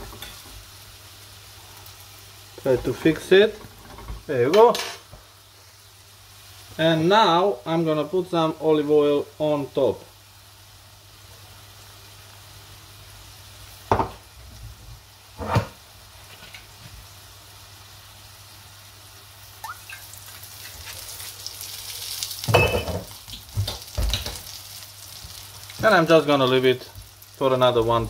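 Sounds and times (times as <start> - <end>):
flatbread sizzling in a pan: 0.0 - 28.0
knocks on a pan: 13.9 - 14.2.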